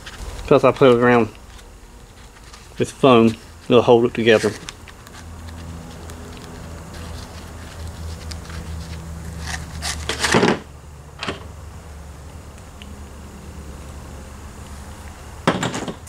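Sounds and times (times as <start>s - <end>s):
foam rubbing noise: 0.0s - 10.3s
steady low hum: 0.0s - 16.0s.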